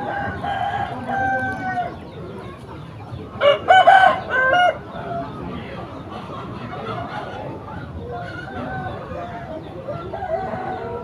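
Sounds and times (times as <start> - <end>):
roosters crowing: 0.0 - 2.0, 3.4 - 5.3, 8.0 - 11.0.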